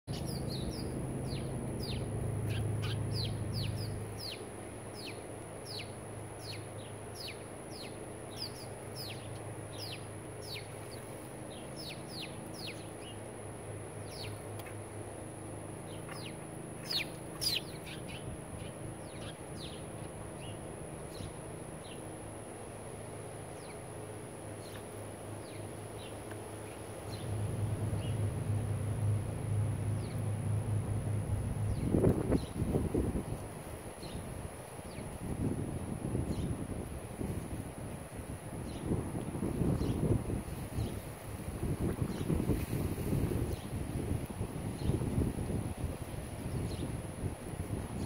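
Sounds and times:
sparrows chirping: 0.1s - 22.4s, 23.0s - 35.2s, 36.1s - 36.6s, 38.6s - 41.2s, 42.0s - 43.8s, 44.7s - 45.2s, 46.4s - 47.0s
low hum: 0.1s - 38.1s.

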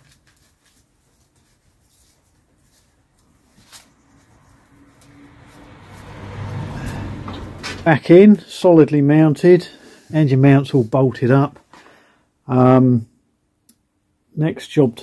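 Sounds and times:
rustling: 0.0s - 6.2s.

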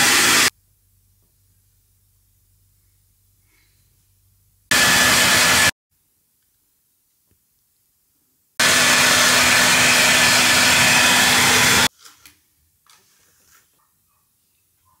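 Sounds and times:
hair dryer blowing: 0.0s - 0.5s, 4.7s - 5.8s, 8.6s - 11.9s.

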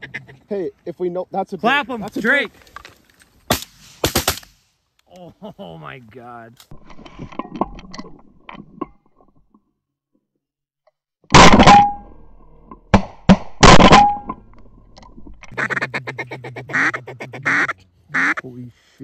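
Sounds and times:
sharp cracks: 2.7s - 4.8s, 11.3s - 15.6s
shotgun shots: 3.5s - 4.6s, 11.3s - 12.0s, 13.0s - 14.4s
ducks quacking: 15.5s - 18.5s.

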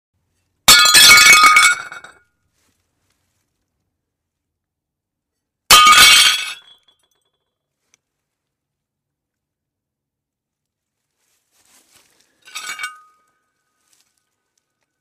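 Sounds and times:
plate smashing: 0.7s - 2.2s, 5.7s - 6.9s
shards clattering and tinkling: 12.4s - 13.3s.

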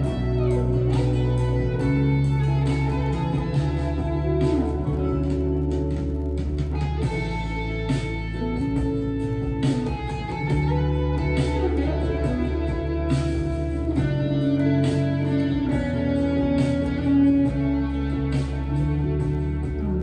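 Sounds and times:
bass line: 0.0s - 20.0s
electric guitar melody: 0.0s - 20.0s
slow regular beat: 0.0s - 20.0s.

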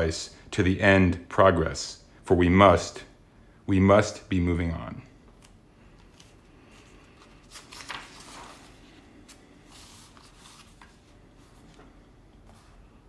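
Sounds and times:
book pages rustling: 5.4s - 12.8s.

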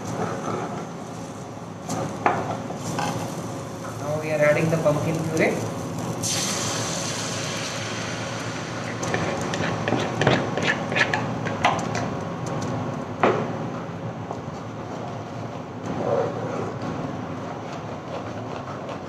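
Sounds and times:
spoon scraping bowl: 9.0s - 11.2s.

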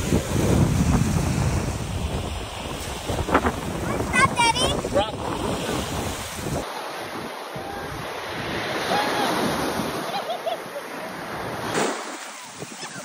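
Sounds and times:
wind on microphone: 0.0s - 10.0s
small waves washing on sand: 0.0s - 13.0s.

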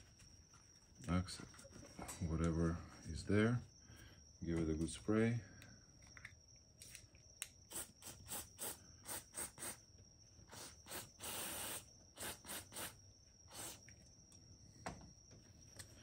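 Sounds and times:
aerosol spray hissing: 7.7s - 9.8s, 10.5s - 13.9s.

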